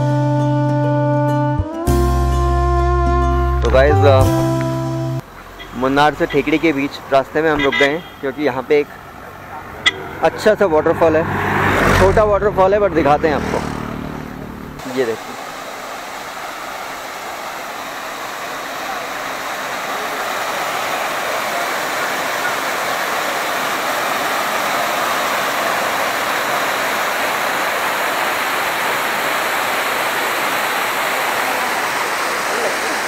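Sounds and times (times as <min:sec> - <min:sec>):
small waterfall splashing on rock: 0:14.8 - 0:33.0.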